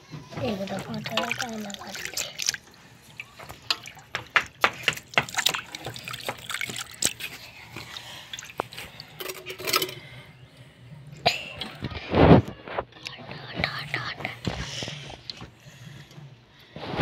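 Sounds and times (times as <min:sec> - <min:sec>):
water splashing and sloshing: 0:00.0 - 0:10.4.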